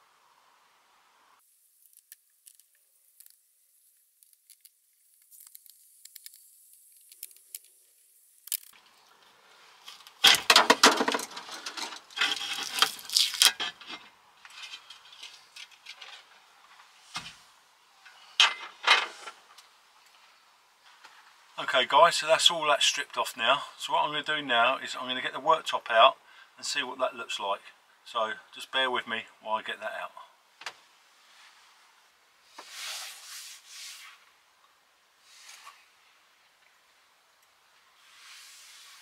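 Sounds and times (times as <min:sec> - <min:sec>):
metal parts clinking and rattling: 0:08.4 - 0:08.8, 0:10.2 - 0:16.3.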